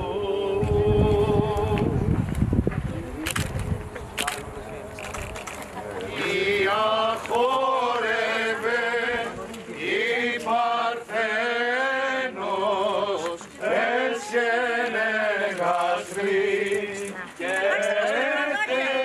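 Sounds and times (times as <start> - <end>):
male voices chanting a hymn: 0.0 - 2.1, 6.0 - 19.0.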